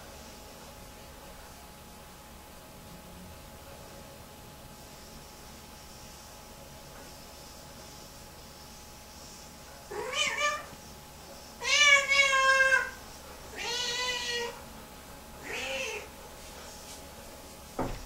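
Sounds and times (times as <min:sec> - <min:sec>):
cat yowling: 0:09.9 - 0:10.7, 0:11.6 - 0:14.6, 0:15.4 - 0:16.1.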